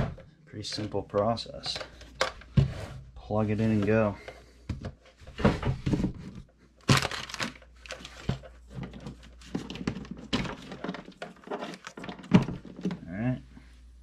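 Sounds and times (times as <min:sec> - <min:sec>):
plastic packaging crinkling: 0:06.8 - 0:12.3.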